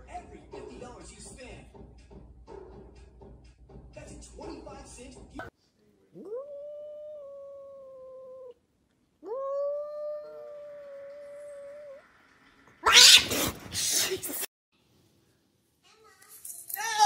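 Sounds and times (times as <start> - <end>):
cats yowling: 6.2 - 8.6, 9.2 - 12.0, 12.8 - 13.5.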